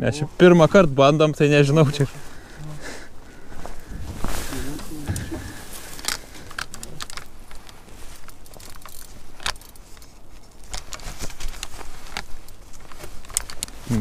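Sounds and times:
fishing gear clicking and rattling: 3.7 - 14.0.

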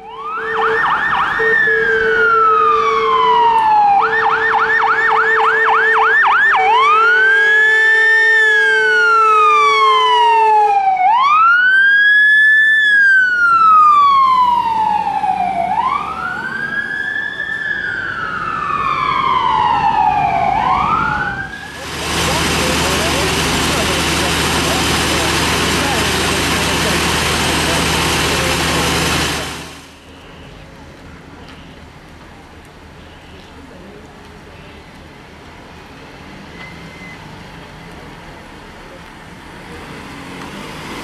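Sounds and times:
electronic siren yelp and wail: 0.0 - 21.8.

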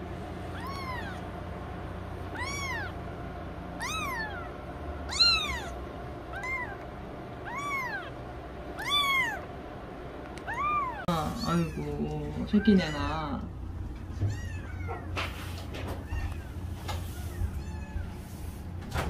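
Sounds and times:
kitten mewing: 0.5 - 1.3, 2.2 - 3.0, 3.8 - 9.5, 10.3 - 13.4.

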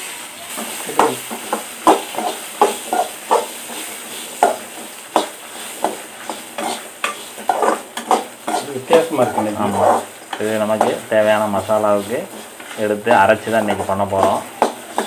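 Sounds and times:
spices sizzling in hot oil: 0.0 - 15.0
metal spatula scraping a pan: 0.5 - 15.0.

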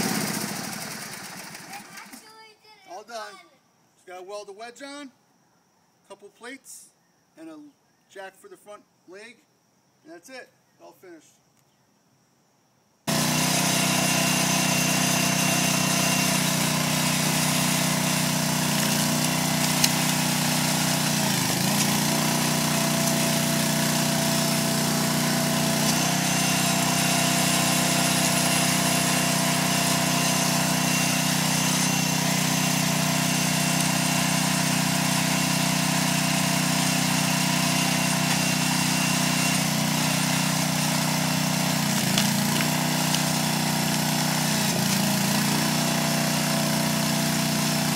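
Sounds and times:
small gasoline engine running: 0.0 - 2.5, 13.1 - 47.9.

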